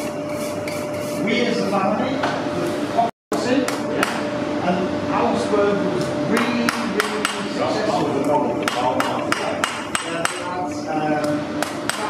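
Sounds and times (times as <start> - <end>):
hammer striking iron on anvil: 8.6 - 10.5.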